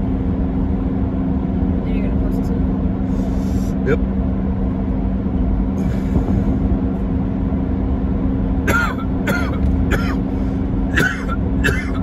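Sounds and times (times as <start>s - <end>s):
car road and engine drone: 0.0s - 12.0s
person coughing: 8.7s - 10.2s, 10.9s - 12.0s.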